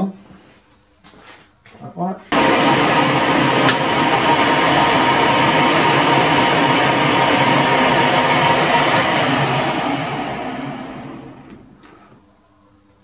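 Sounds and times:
metal lathe running: 2.4 - 11.8.

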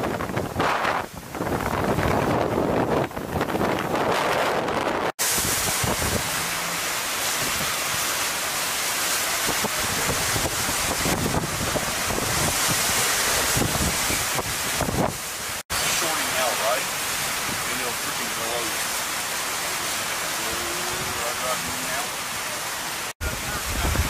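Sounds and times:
wind buffeting microphone: 0.0 - 8.3, 9.4 - 15.6, 23.2 - 24.0
heavy rain: 0.0 - 24.0
hurricane wind: 0.0 - 24.0.

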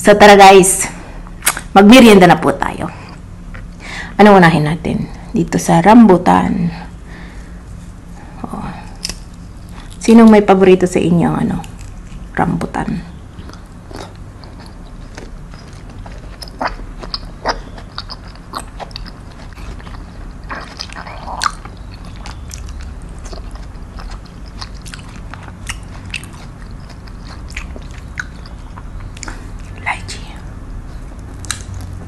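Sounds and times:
person chewing fruit: 7.3 - 10.3, 11.5 - 12.5, 13.2 - 32.0.

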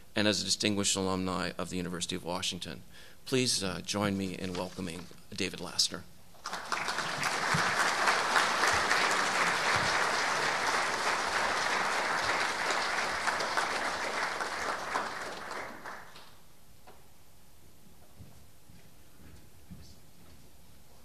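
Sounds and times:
audience applauding: 6.4 - 16.4.

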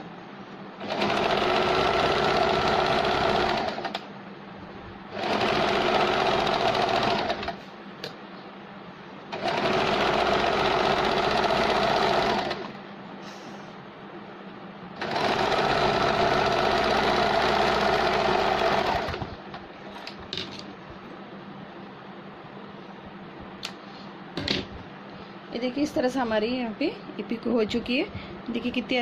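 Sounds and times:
sewing machine stitching: 0.8 - 4.0, 5.1 - 7.6, 9.3 - 12.8, 15.0 - 19.3.

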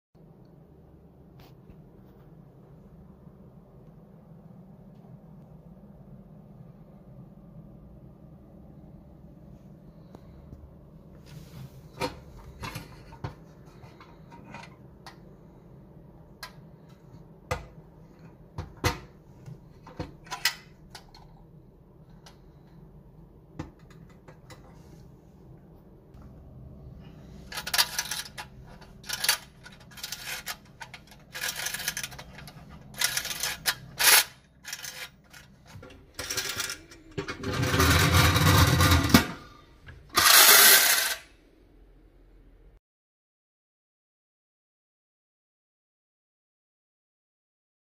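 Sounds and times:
clockwork spring motor whirring: 29.0 - 35.5, 40.2 - 41.3.

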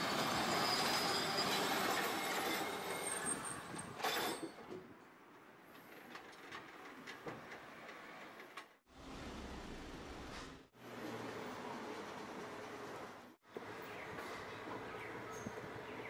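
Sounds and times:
streetcar wheels rumbling on track: 5.9 - 16.0.

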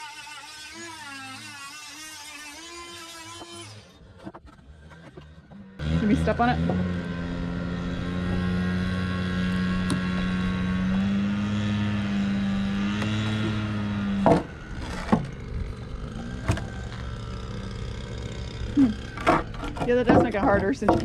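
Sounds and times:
power drill running under load: 0.0 - 4.2, 5.8 - 19.9
sharp knocks: 14.2 - 15.3, 19.2 - 21.0.

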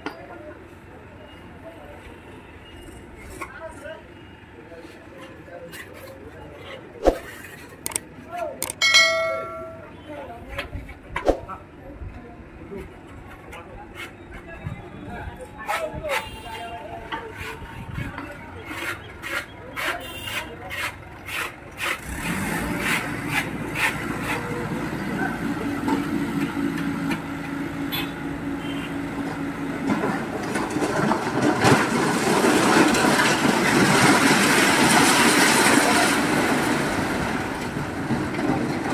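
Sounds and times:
concrete blocks clattering out: 30.4 - 36.9.

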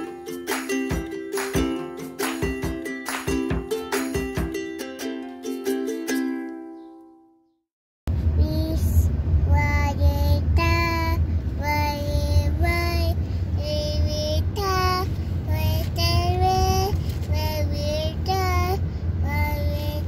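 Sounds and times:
car road and engine rumble: 8.1 - 20.0
young child singing: 8.4 - 20.0.

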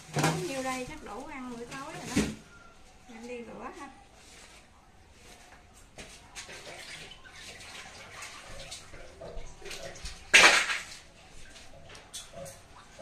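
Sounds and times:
tap water running and splashing: 5.4 - 13.0.

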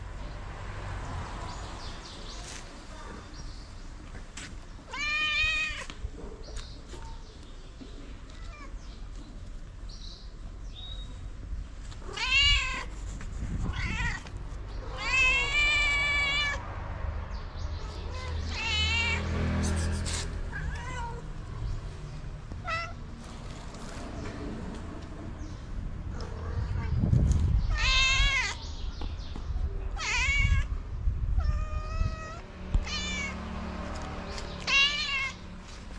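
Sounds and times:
cats meowing: 4.9 - 6.0, 12.0 - 13.0, 13.6 - 16.6, 17.8 - 19.4, 20.5 - 21.5, 22.6 - 23.1, 27.7 - 28.6, 29.9 - 30.7, 31.3 - 33.4, 34.6 - 35.4.

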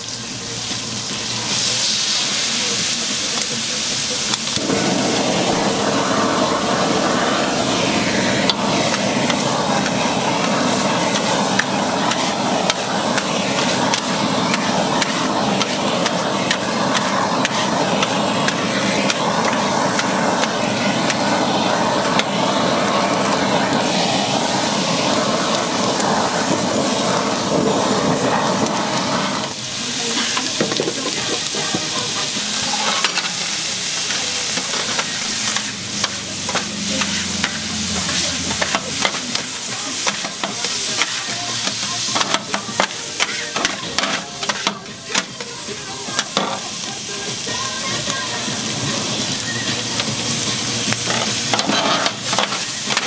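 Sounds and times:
food sizzling on griddle: 0.0 - 53.0
metal spatulas scraping and clattering: 51.1 - 52.6.

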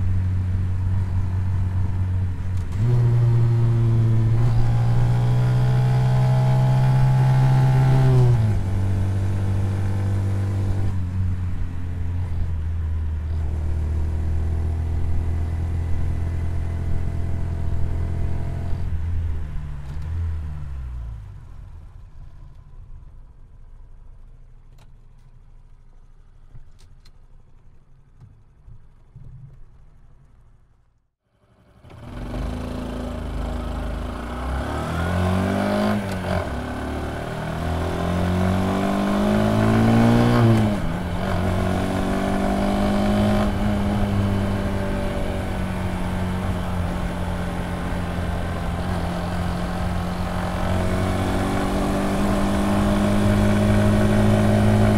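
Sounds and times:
motorcycle engine running: 21.3 - 34.5, 36.4 - 54.9.

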